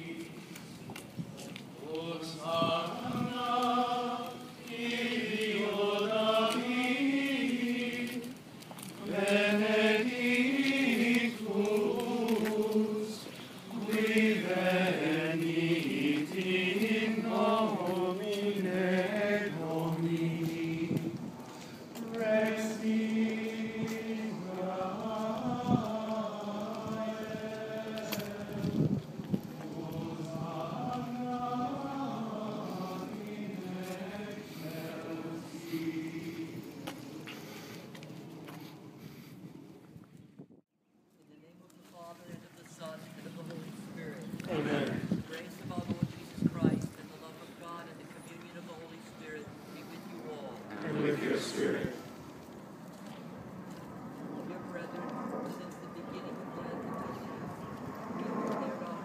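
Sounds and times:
men singing a chant: 1.8 - 8.4, 9.0 - 21.1, 22.0 - 28.8, 29.6 - 37.3, 44.4 - 45.1, 50.7 - 52.0.

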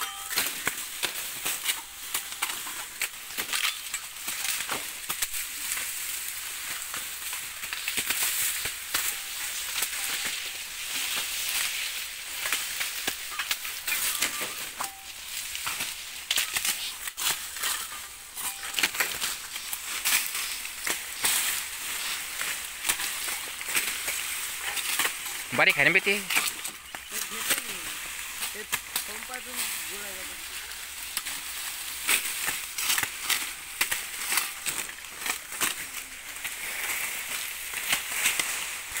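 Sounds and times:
dry leaves rustling and crackling: 0.0 - 39.0
stalks snapping: 18.4 - 29.8, 31.0 - 39.0.

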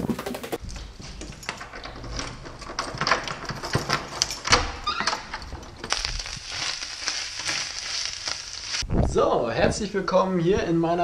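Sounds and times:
door squeak: 4.4 - 5.5.

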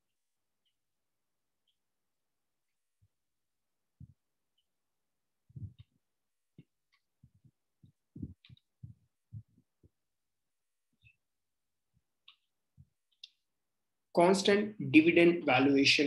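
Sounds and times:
stylus tapping on tablet: 5.5 - 10.0.

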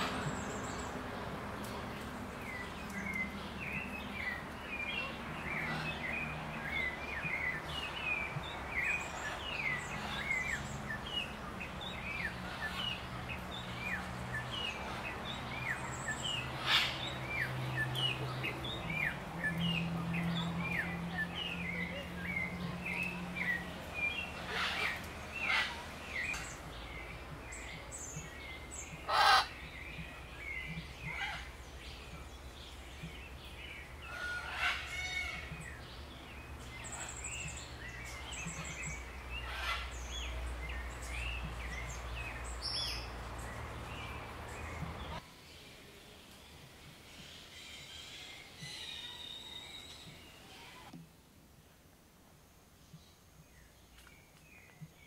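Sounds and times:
birds chirping: 0.0 - 51.0
harsh bird squawks: 29.1 - 29.6.

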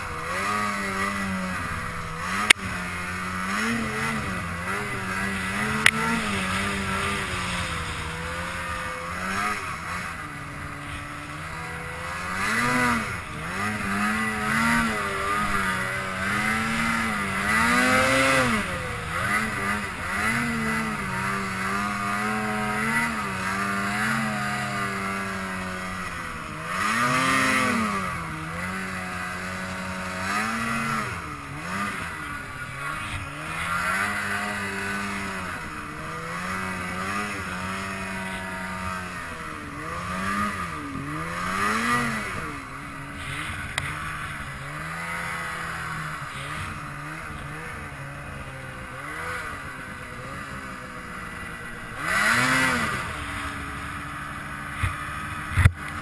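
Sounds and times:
snowmobile engine revving: 0.0 - 56.0.

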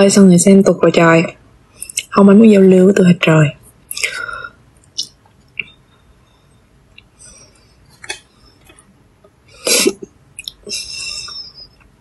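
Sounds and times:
woman coughing: 9.6 - 10.1.

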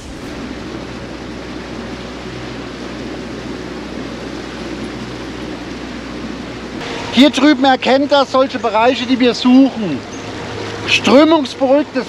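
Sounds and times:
low engine hum: 0.0 - 12.0
water rushing along boat hull: 0.0 - 12.0.

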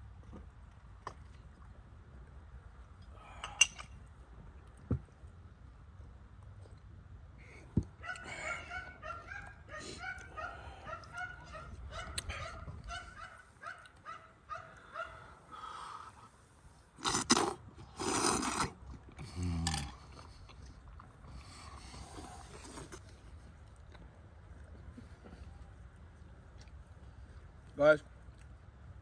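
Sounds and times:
man slurping soup: 17.0 - 20.5, 21.3 - 23.1
man humming low mmm: 19.2 - 20.0.

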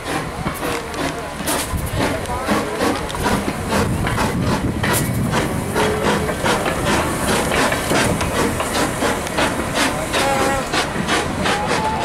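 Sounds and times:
steam hissing: 0.0 - 12.0
steam locomotive exhaust chuffs: 0.0 - 12.0.

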